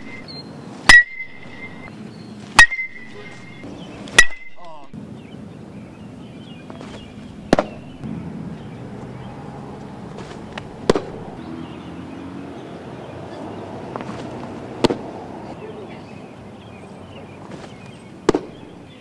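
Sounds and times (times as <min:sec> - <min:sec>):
baseball popping into leather mitt: 0:06.7 - 0:07.9, 0:10.1 - 0:11.4, 0:13.9 - 0:15.2, 0:17.5 - 0:18.7.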